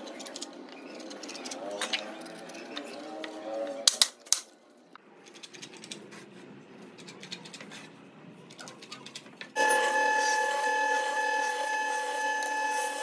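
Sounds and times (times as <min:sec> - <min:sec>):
jointer running with whine: 0:09.6 - 0:13.0.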